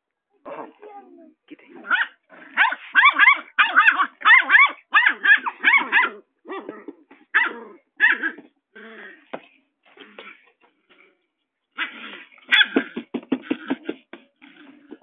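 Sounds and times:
puppy barking: 1.8 - 6.7, 7.3 - 8.4, 11.8 - 12.9.

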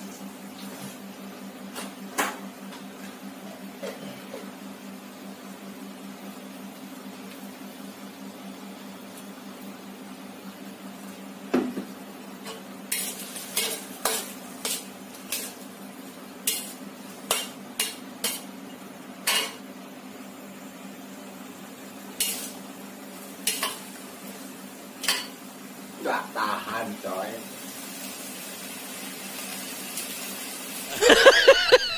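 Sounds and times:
metal spatula scraping wok: 12.9 - 15.6, 16.4 - 18.4, 22.2 - 22.6.

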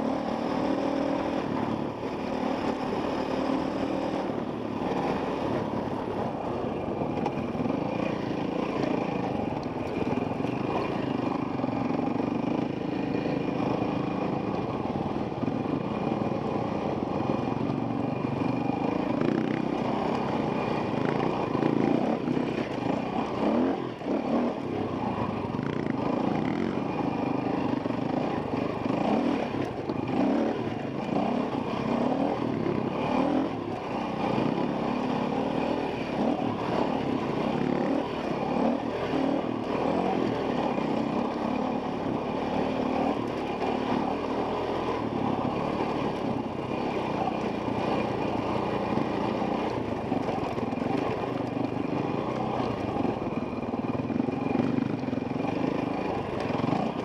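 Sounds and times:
dirt bike engine revving: 15.8 - 57.0.

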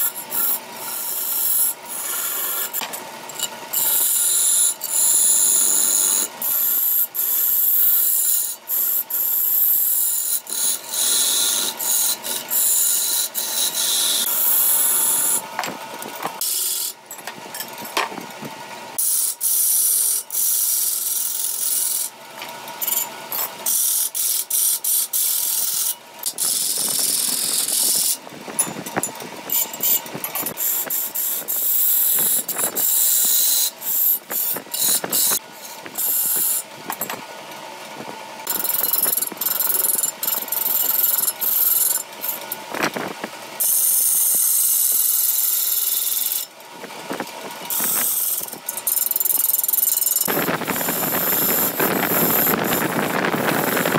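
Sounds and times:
lathe tool scraping wood: 0.0 - 17.0, 19.0 - 37.2, 47.7 - 53.9.

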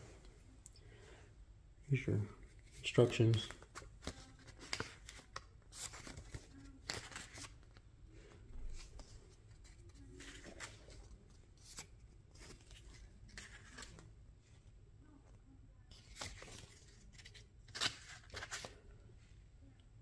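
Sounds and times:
paper and packaging rustling: 2.4 - 7.8, 8.6 - 14.1, 15.9 - 18.9.

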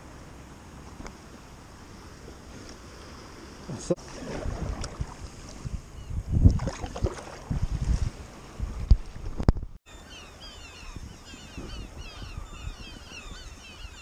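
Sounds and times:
kayak paddle splashing: 3.9 - 5.7, 6.5 - 9.4
wind noise on microphone: 4.2 - 9.8, 10.6 - 14.0.

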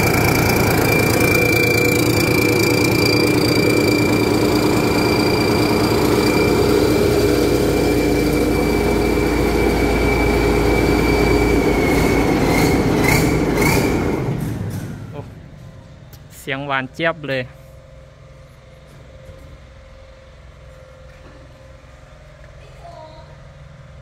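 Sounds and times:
harvester diesel engine running: 0.0 - 24.0.

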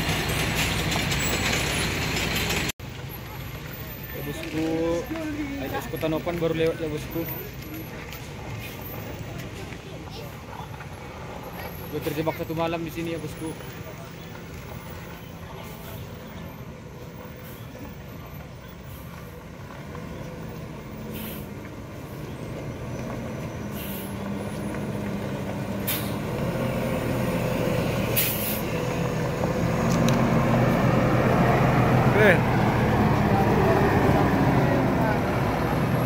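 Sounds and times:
diesel truck engine running: 0.0 - 36.0
air brake hisses: 21.1 - 21.5, 23.7 - 24.2, 28.2 - 28.7.

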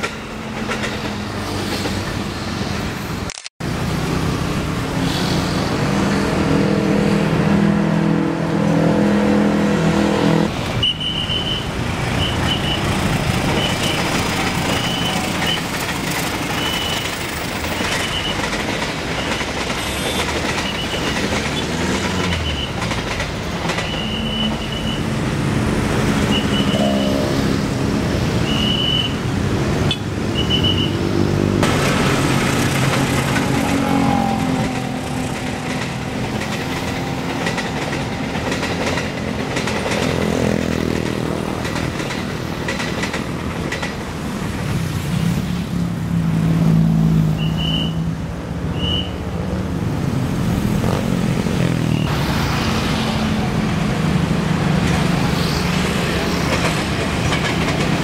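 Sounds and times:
train wheels clattering over rails: 0.0 - 2.6, 12.0 - 25.0, 31.6 - 44.8, 53.5 - 58.0
electric train approaching: 3.7 - 29.7, 31.6 - 45.1, 50.3 - 58.0.

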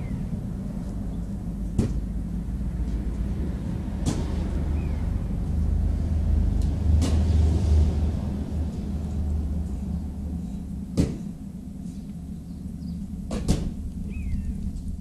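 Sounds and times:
steady low rumble: 0.0 - 15.0
sharp knocks: 1.8 - 2.1, 11.0 - 11.3.

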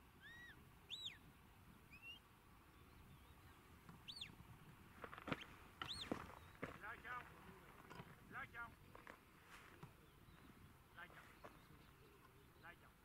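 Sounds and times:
shepherd's whistle: 0.2 - 1.2.

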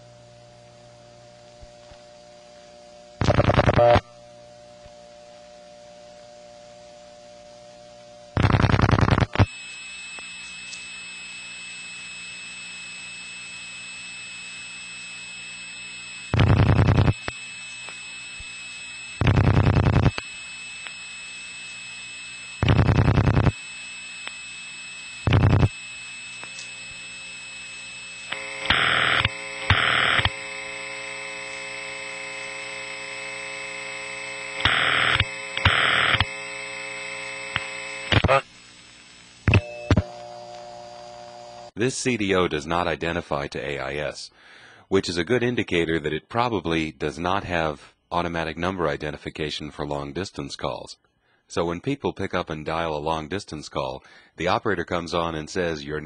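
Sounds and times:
telephone line hiss and hum: 0.0 - 44.8
telephone ringback tone: 6.0 - 24.0, 25.1 - 38.4, 39.5 - 41.7
rapid dialing clicks: 8.4 - 9.5, 16.2 - 21.9, 22.6 - 23.6, 25.2 - 27.0, 28.3 - 38.4.

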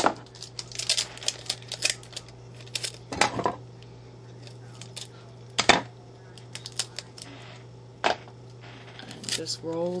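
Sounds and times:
sticky tape crackling clicks: 0.0 - 3.0, 6.4 - 7.3
steady low hum: 0.0 - 10.0.

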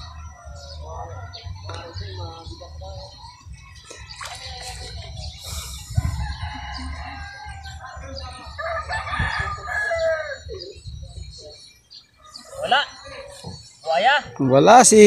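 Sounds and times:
rooster crowing: 5.9 - 8.0, 8.6 - 10.6.

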